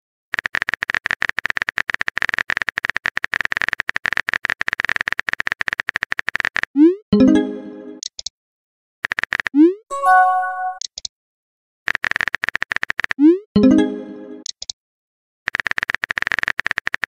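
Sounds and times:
message notification sound: 7.2 - 8.0, 9.9 - 10.8, 13.6 - 14.4
keyboard typing clicks: 9.9 - 11.1.

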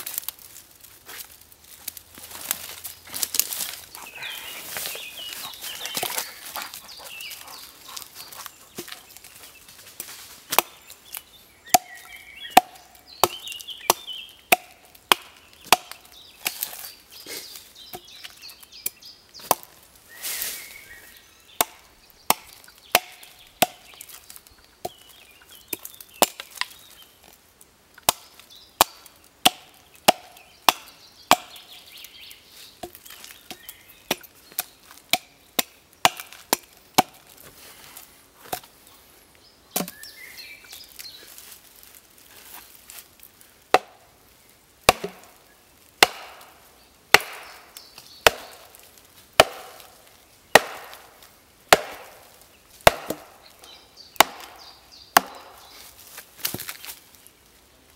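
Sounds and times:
axe chopping wood: 10.5 - 10.8, 11.7 - 16.9, 19.4 - 19.7, 21.6 - 24.1, 28.0 - 31.7, 32.8 - 37.4, 39.8 - 40.0, 43.7 - 44.0, 44.8 - 45.4, 46.0 - 53.4, 54.2 - 55.7, 56.4 - 56.8.

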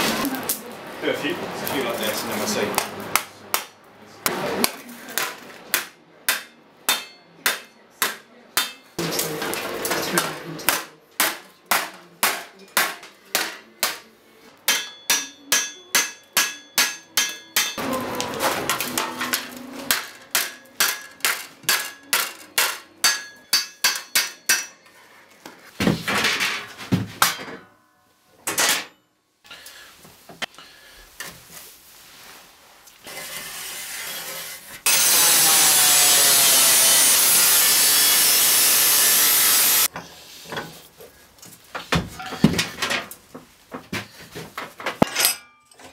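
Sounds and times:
hammer blows on anvil: 14.7 - 17.8
angle grinder cutting steel: 33.1 - 39.9.

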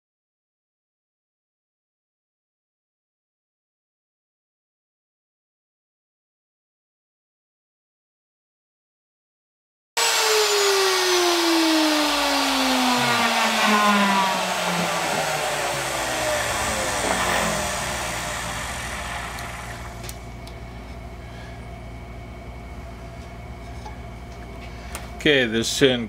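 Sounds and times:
router motor spinning down: 10.0 - 20.2
steady low hum: 10.3 - 26.0.

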